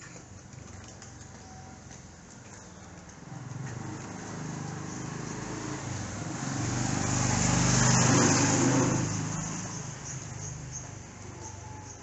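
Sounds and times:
vehicle driving past: 3.3 - 10.9.

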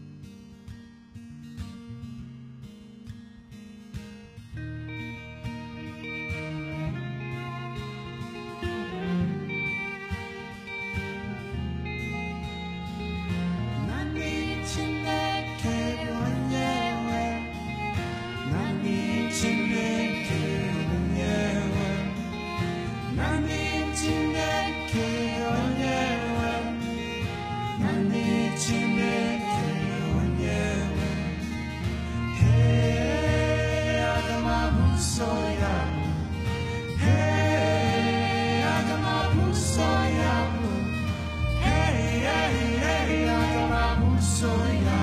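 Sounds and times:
acoustic guitars: 0.0 - 45.0
cello: 4.5 - 45.0
voices singing gospel: 13.4 - 45.0.

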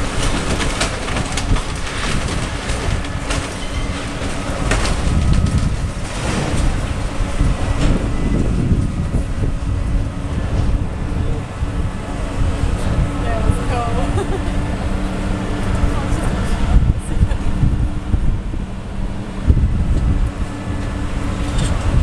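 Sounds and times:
debris crunching and cracking: 0.0 - 10.8
rumbling falls of material: 0.0 - 14.4
excavator engine rumble: 0.0 - 22.0.

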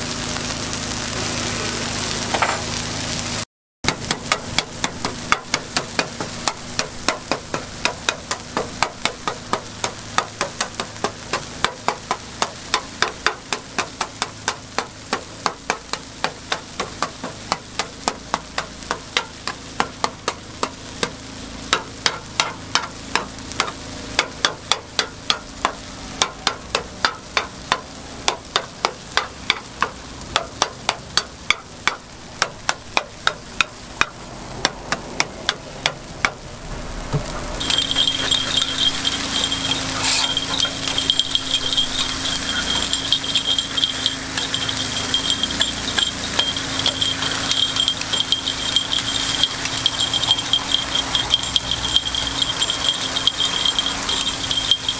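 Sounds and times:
frying sizzle: 0.0 - 54.9
metal scraper knocking on griddle: 3.8 - 36.4, 37.1 - 54.9
metal picks clattering: 37.6 - 54.9.

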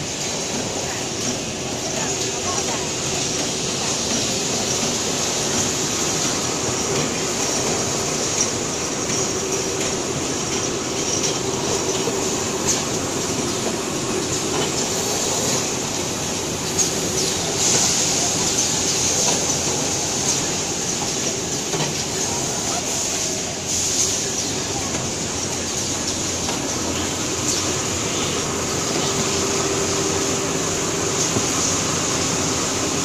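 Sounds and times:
machines running: 0.0 - 33.0.

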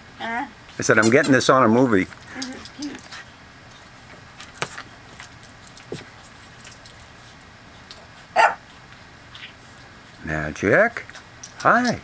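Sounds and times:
small dog barking: 8.3 - 8.6.

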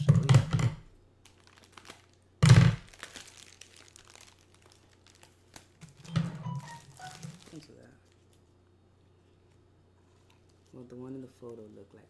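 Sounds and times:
plastic bag crinkling: 1.2 - 8.6.

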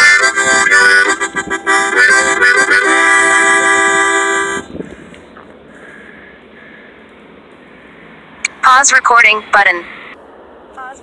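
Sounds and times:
harmonica playing: 0.0 - 5.1.

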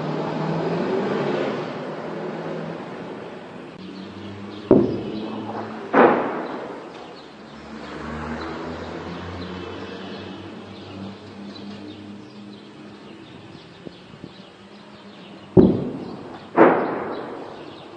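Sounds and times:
shelling bangs with echo: 4.6 - 7.4, 15.5 - 17.9.

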